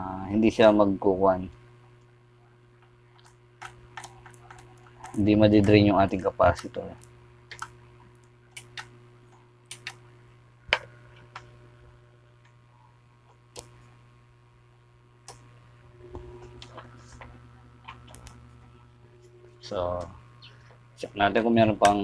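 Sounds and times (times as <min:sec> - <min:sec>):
steady low hum: 0:00.0 - 0:22.0
tools tapping circuit board: 0:07.5 - 0:07.8, 0:08.5 - 0:08.9, 0:21.3 - 0:22.0.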